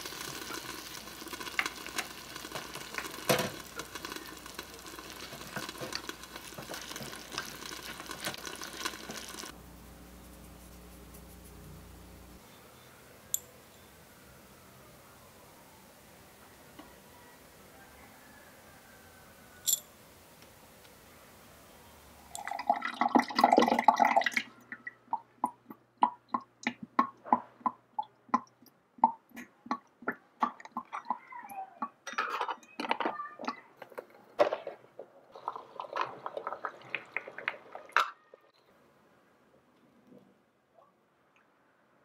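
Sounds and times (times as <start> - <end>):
water splashing into a steel pot: 0.0 - 9.5
water drips and splashes: 0.0 - 9.6, 22.3 - 32.0.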